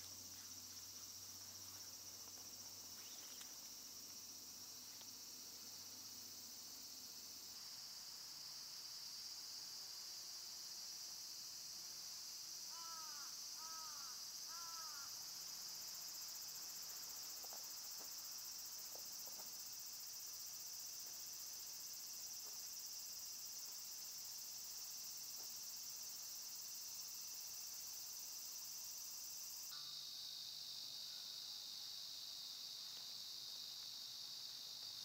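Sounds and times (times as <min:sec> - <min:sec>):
faint ticks: 0:00.0 - 0:04.2, 0:04.8 - 0:05.2, 0:32.8 - 0:35.0
insects shrilling: 0:00.0 - 0:04.2.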